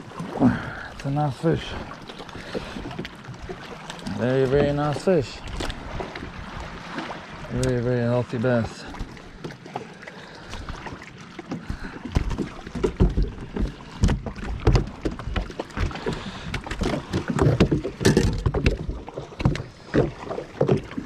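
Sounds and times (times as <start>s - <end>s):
water slapping against boat: 0.0s - 21.0s
knocks on boat hull: 12.1s - 16.1s.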